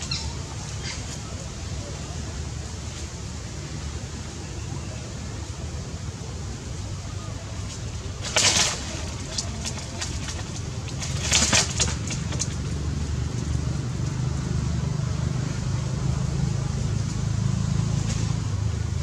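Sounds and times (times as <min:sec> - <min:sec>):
low engine-like rumble: 0:00.0 - 0:19.0
short rustling: 0:07.6 - 0:12.7.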